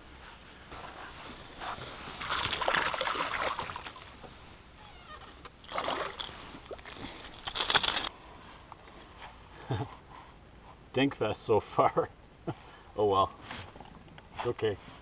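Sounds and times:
fish splashing in water: 2.1 - 4.3, 5.6 - 8.1.

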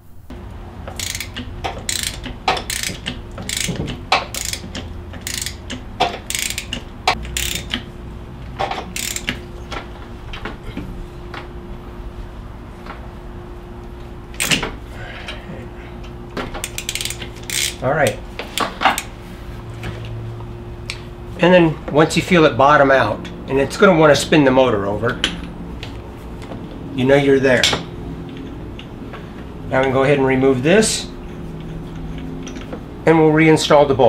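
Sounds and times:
hand ratchet clicking: 0.9 - 7.9, 8.8 - 9.4, 16.6 - 19.1.

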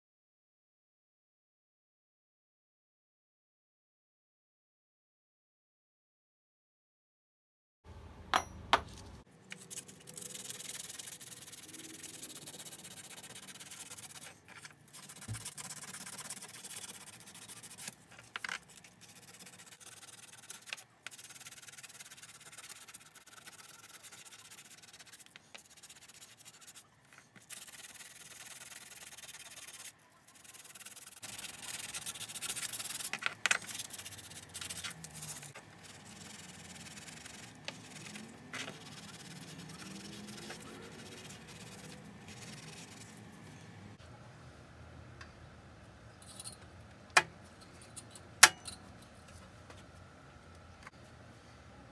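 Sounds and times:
metal ring sanded by hand: 9.5 - 18.0, 18.6 - 26.8, 27.4 - 43.2.

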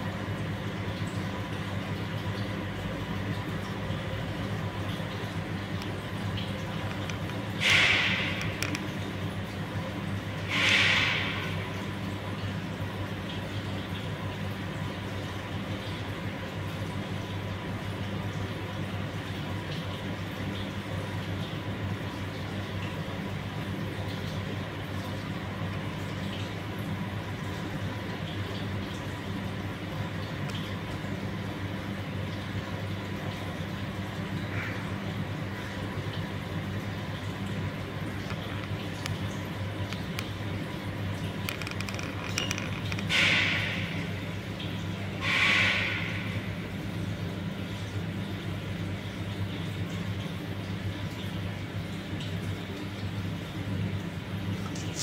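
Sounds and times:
low machine hum: 0.0 - 55.0.

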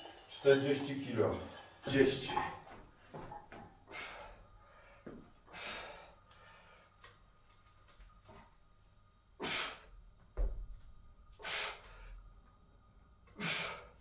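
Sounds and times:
man exhaling forcefully: 9.4 - 9.9, 11.4 - 12.0, 13.4 - 14.0.

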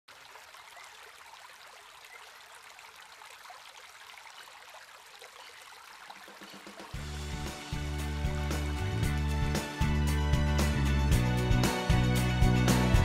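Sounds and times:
trickling water: 0.1 - 9.7.

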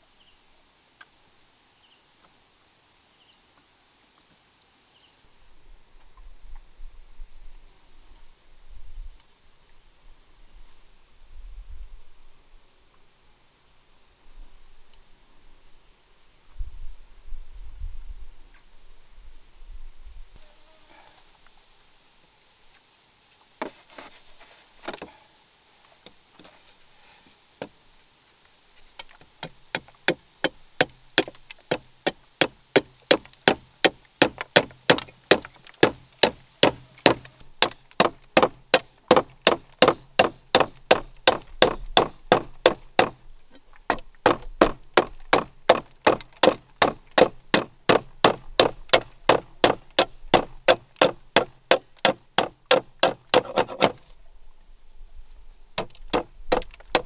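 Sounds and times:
knife chopping bamboo on wood: 29.1 - 43.2, 43.9 - 54.1, 55.8 - 57.0.

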